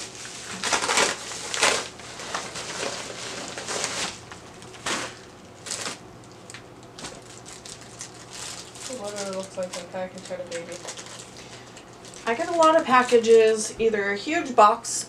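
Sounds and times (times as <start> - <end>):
plastic wrapping crinkling: 0.0 - 13.6
paper mailer tearing: 0.2 - 6.0.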